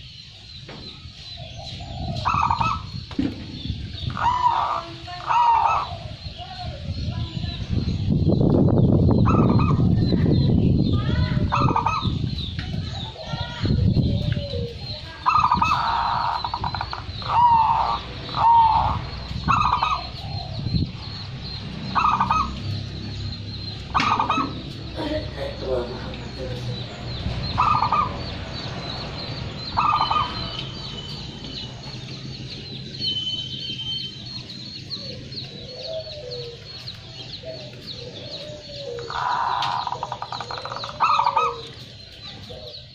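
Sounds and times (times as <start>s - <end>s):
dove cooing: 1.4s - 3.0s, 4.0s - 6.2s, 9.2s - 10.0s, 11.4s - 28.4s, 29.6s - 30.6s, 34.8s - 42.9s.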